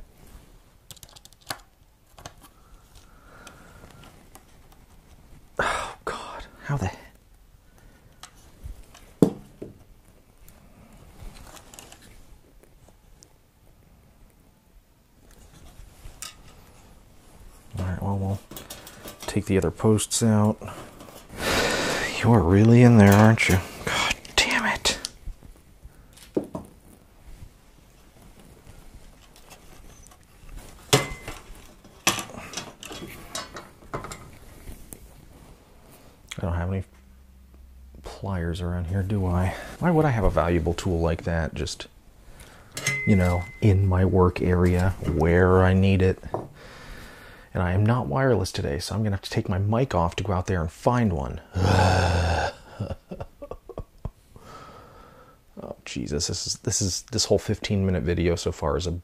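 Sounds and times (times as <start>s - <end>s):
metal parts clicking and scraping: 18.4s - 19.4s, 30.9s - 34.4s.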